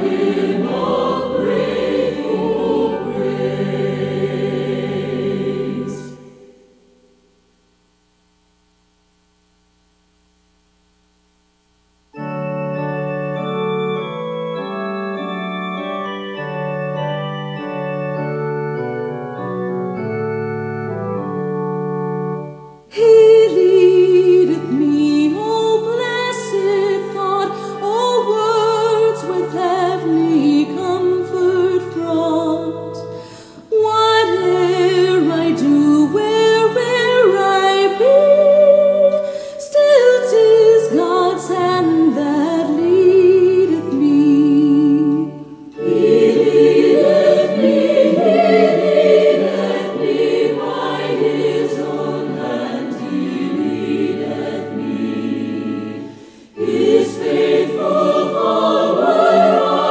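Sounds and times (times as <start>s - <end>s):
church organ chords: 0.0s - 7.2s, 12.1s - 39.2s, 40.7s - 59.9s
woman singing with vibrato: 22.9s - 33.0s, 33.7s - 53.9s.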